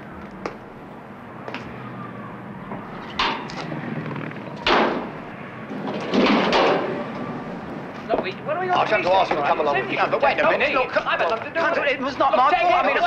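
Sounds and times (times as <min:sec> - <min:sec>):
car engine backfire bangs: 0:02.7 - 0:07.4.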